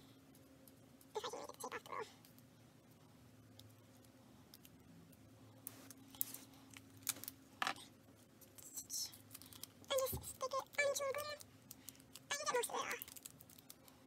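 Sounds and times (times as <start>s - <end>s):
faint steady hum: 0.0s - 14.0s
small objects clicking and rustling: 8.4s - 14.0s.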